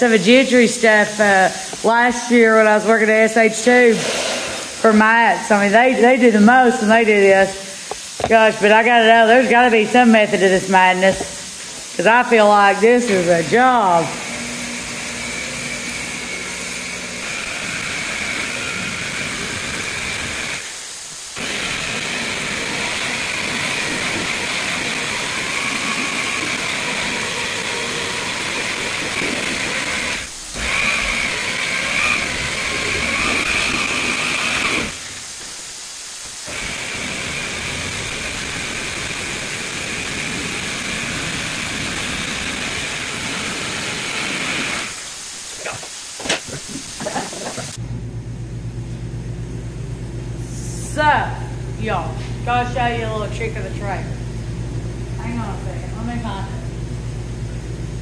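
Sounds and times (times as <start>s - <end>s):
power buffer motor whine: 13.0s - 20.7s, 21.4s - 35.1s, 36.5s - 45.0s.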